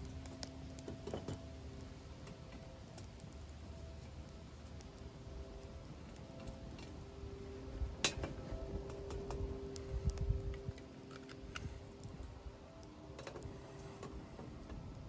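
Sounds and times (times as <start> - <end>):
kindling fire crackling: 0.0 - 15.0
dry sticks snapping: 8.0 - 13.5.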